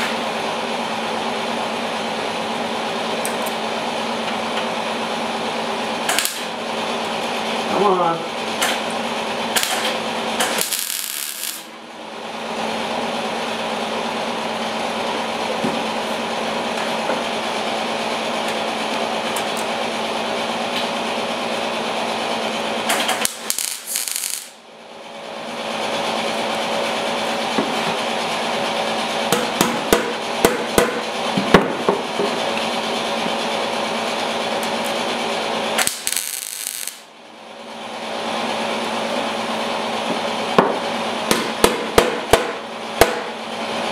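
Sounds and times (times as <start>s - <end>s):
welder crackling buzz: 5.9s - 7.2s, 8.5s - 11.8s, 22.2s - 24.6s, 34.2s - 37.2s
welding spatter pops: 6.1s - 6.5s, 9.6s - 11.7s, 22.9s - 24.6s, 35.8s - 37.1s.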